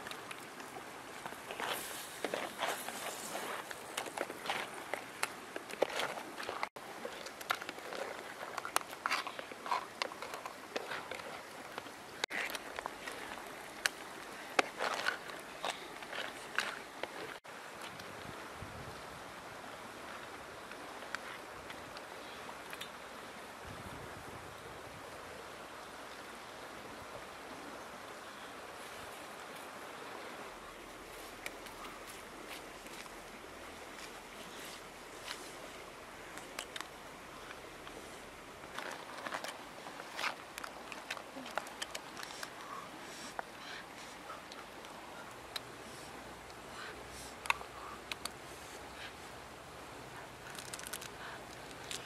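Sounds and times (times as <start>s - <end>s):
river rushing over stones: 0.0s - 52.0s.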